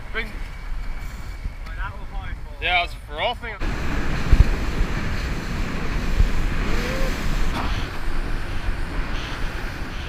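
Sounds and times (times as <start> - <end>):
wind buffeting microphone: 0.0 - 10.0
water rushing past boat hull: 3.6 - 10.0.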